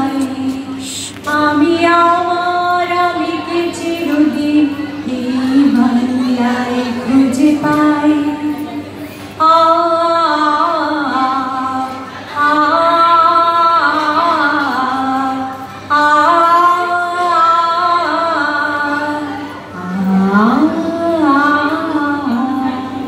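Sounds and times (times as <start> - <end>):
women singing long notes: 9.4 - 23.0.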